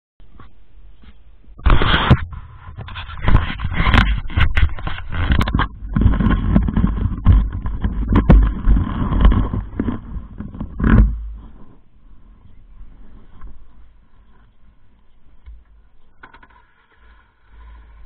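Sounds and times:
camera handling rubbing: 1.6 - 11.8.

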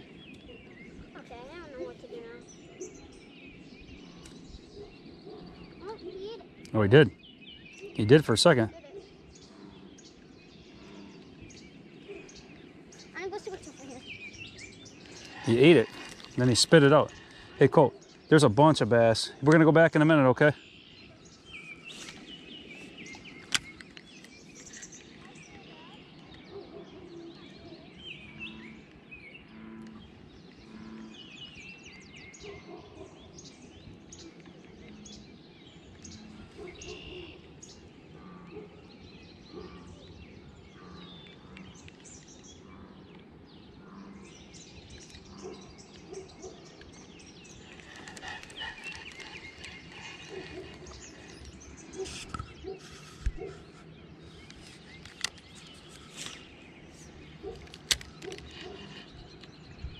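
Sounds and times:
low outdoor background: 0.0 - 59.9
small birds chirping: 0.0 - 59.9
sharp clicks: 57.5 - 59.6.

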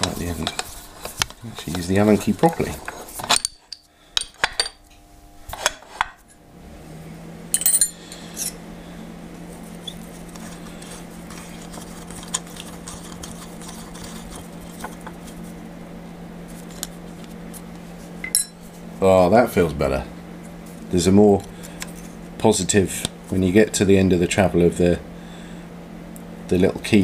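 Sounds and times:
steady low hum: 0.0 - 27.0
allen key clinking on metal: 7.6 - 8.6.

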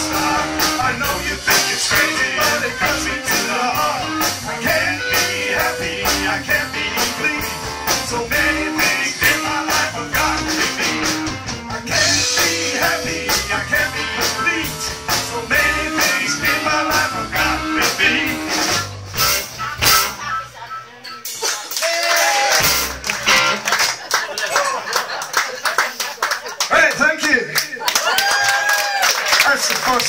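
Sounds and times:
man singing into a microphone: 0.0 - 11.0, 11.9 - 18.4
blues harmonica: 0.0 - 21.4
bass guitar: 0.0 - 23.8
drums: 0.0 - 24.4
electric guitar: 22.6 - 23.8.

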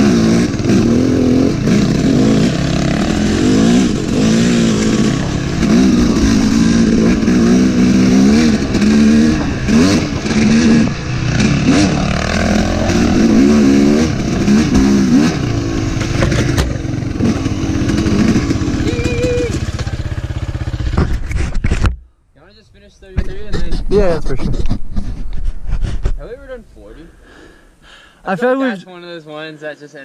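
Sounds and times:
dirt bike engine revving: 0.0 - 21.2.

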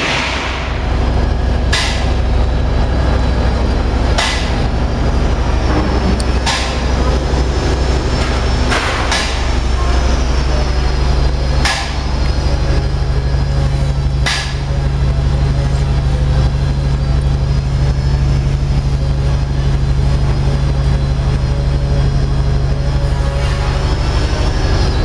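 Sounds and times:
machine humming: 0.0 - 25.0
sharp knocks: 1.7 - 2.2, 4.2 - 4.6.

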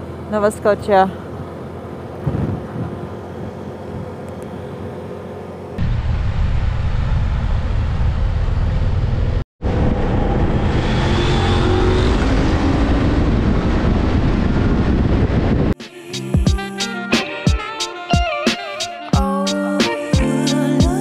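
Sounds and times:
motorcycle engine drone: 0.0 - 16.7
wind noise on microphone: 2.2 - 4.2, 5.8 - 15.8.

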